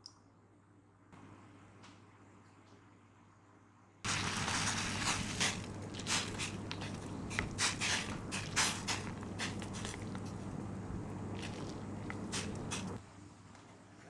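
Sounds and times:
water boiling and bubbling: 4.1 - 13.0
chopsticks scraping a pan: 4.5 - 10.3.

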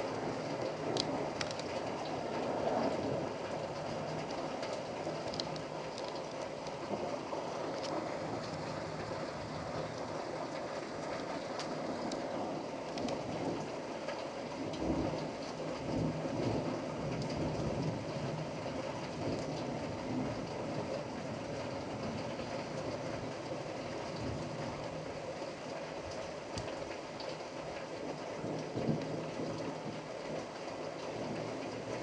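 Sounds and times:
thunder rumbling: 0.0 - 21.6
steady rain: 0.0 - 32.0.

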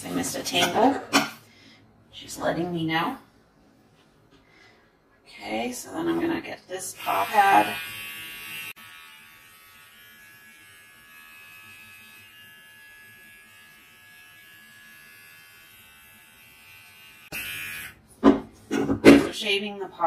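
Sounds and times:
pet trimmer humming: 6.8 - 18.0.

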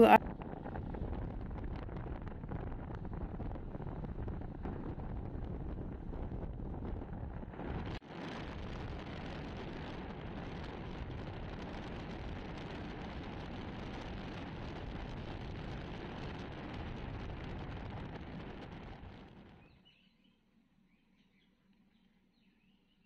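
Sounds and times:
car road and wind noise: 0.2 - 19.6
faint bird chirps: 19.6 - 23.0.

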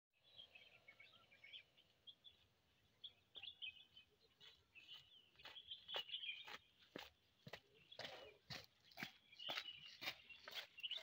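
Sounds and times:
faint birds chirping: 0.2 - 11.0
footsteps on gravel: 4.0 - 11.0.

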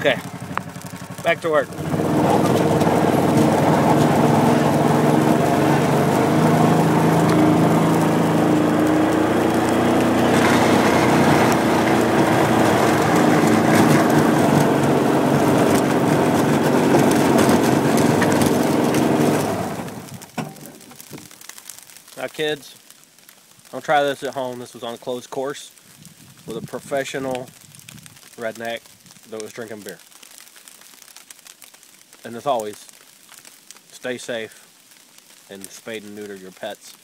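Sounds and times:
utility vehicle engine running: 0.0 - 20.6
broad hiss: 31.8 - 37.0.

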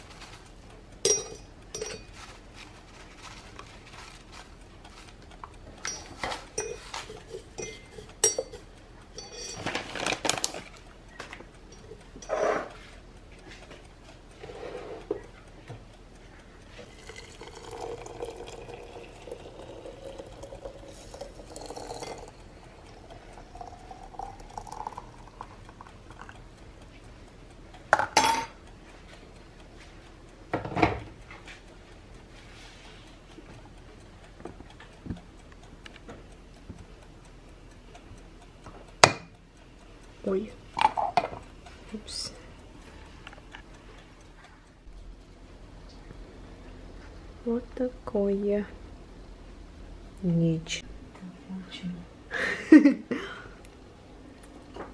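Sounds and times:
spoon clinking on china: 1.0 - 2.1, 5.9 - 8.6, 9.2 - 9.7, 17.1 - 22.4, 23.6 - 25.0
water pouring into teapot: 16.9 - 26.3.

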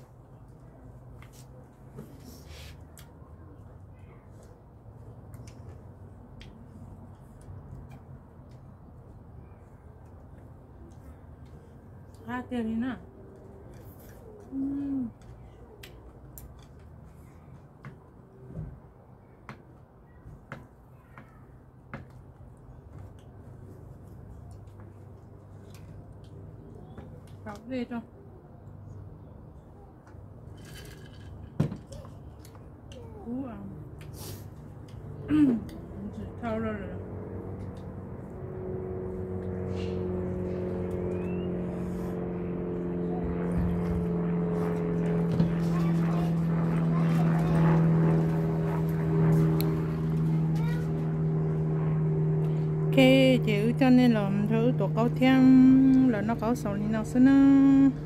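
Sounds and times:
engine droning: 32.4 - 58.0.

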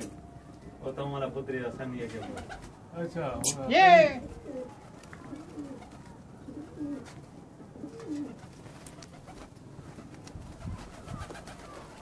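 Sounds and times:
pigeons cooing: 4.2 - 9.6, 10.6 - 12.0.

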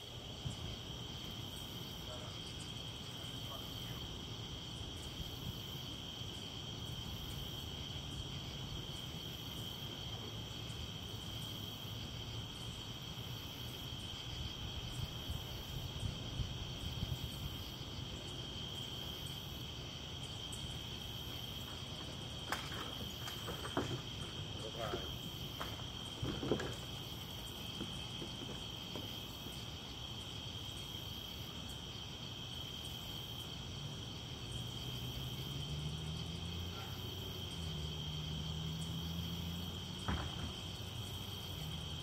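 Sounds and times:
crickets trilling: 0.0 - 42.0
high insect call pulsing: 0.0 - 42.0
low steady background noise: 0.0 - 42.0.

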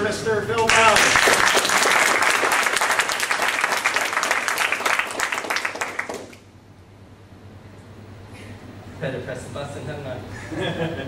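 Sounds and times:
small audience applauding: 0.6 - 6.5.

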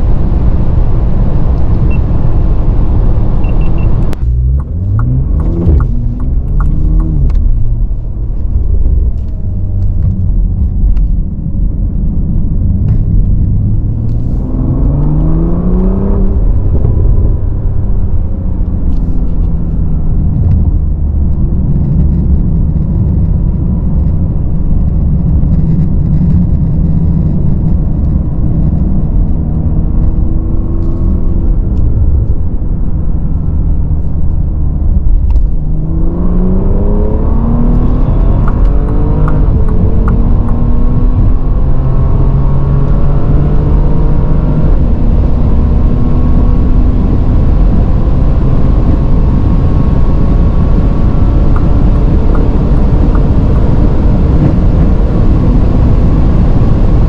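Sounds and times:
car engine revving: 0.0 - 57.0
wind and tyre rush: 0.0 - 57.0
sharp clicks: 4.0 - 7.5, 38.3 - 40.6.

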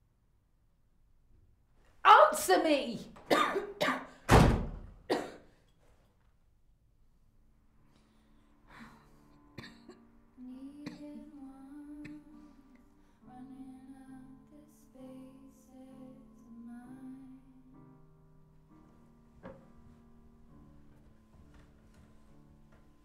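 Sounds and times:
quiet slow background music: 7.3 - 23.0.

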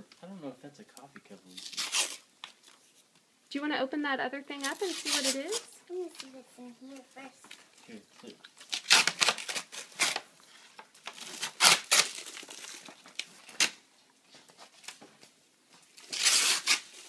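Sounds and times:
tissue paper crinkling: 4.6 - 6.3, 8.6 - 15.0.

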